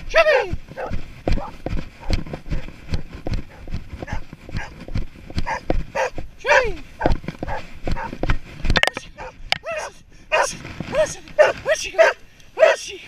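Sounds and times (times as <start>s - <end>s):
footsteps in grass: 0.0s - 8.8s
dog barking: 0.8s - 2.7s, 3.5s - 4.8s, 5.4s - 6.2s, 7.0s - 8.2s, 9.2s - 10.5s, 11.4s - 12.8s.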